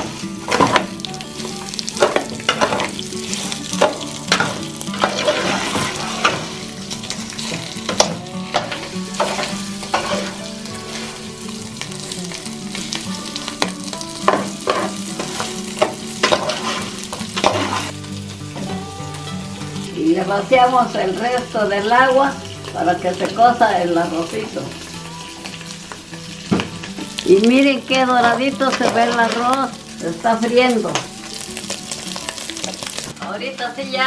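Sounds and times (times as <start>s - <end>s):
rice sizzling in hot oil: 0.0s - 34.0s
metal spoon scraping a pot: 5.0s - 6.6s, 16.2s - 18.0s.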